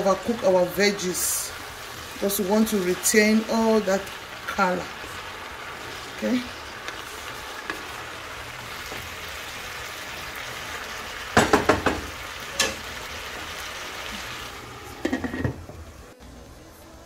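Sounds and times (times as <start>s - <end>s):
vegetables sizzling in a pan: 0.0s - 17.0s
spatula knocking against pan: 11.4s - 12.7s.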